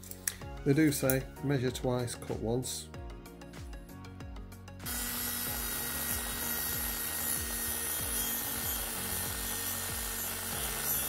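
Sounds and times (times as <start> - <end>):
rotary tool grinding cable: 4.9 - 11.0.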